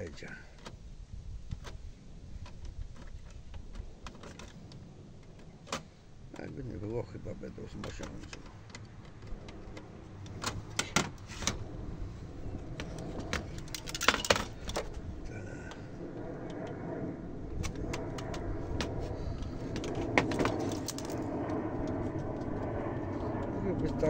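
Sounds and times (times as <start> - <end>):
low background rumble: 0.0 - 24.0
metal parts clicking and clinking: 12.9 - 15.0, 19.8 - 21.2.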